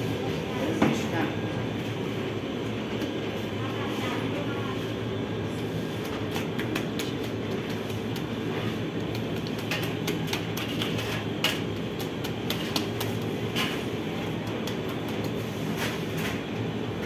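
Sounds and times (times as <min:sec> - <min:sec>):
oven machine hum: 0:00.0 - 0:17.0.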